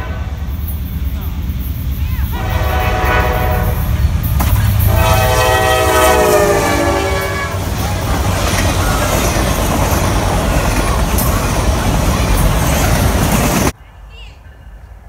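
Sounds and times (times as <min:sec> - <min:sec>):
locomotive air horn blasts: 0:00.0 - 0:00.5, 0:02.3 - 0:04.0, 0:04.8 - 0:07.7
freight cars rumbling and rattling: 0:00.0 - 0:13.8.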